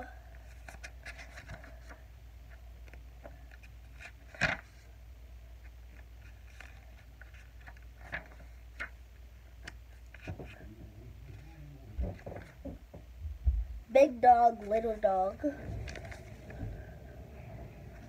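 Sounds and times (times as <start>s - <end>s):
low steady hum: 0.0s - 18.0s
book pages rustling: 0.4s - 4.9s, 5.6s - 9.0s, 9.6s - 10.6s, 14.6s - 18.0s.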